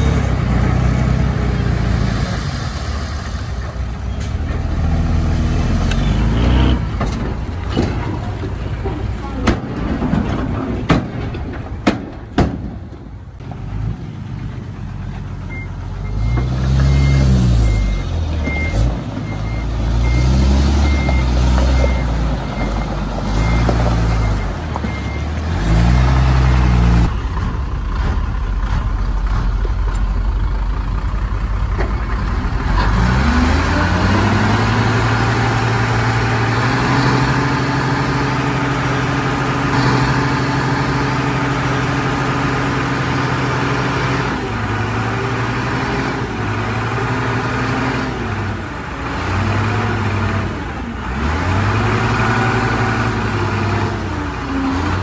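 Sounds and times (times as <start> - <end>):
bulldozer diesel engine revving: 0.0 - 10.8, 13.4 - 55.0
reversing alarm beeping: 15.5 - 25.3.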